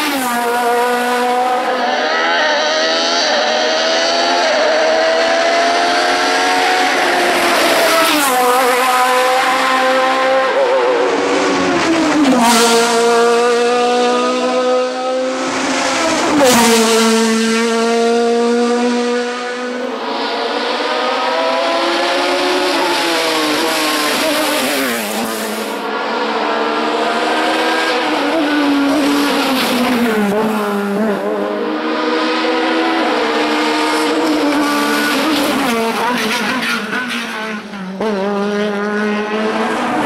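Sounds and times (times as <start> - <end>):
race car engine revving: 0.0 - 40.0.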